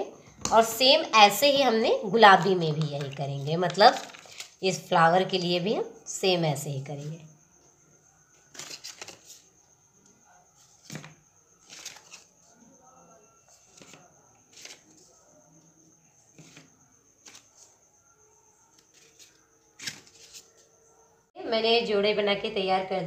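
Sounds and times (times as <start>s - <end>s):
stiff paper rustling: 3.8s - 4.6s, 10.6s - 12.5s.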